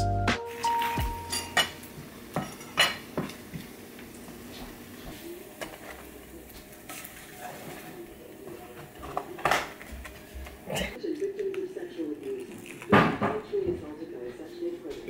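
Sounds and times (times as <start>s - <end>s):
utensils clinking on plates: 0.5s - 4.2s, 5.1s - 11.0s.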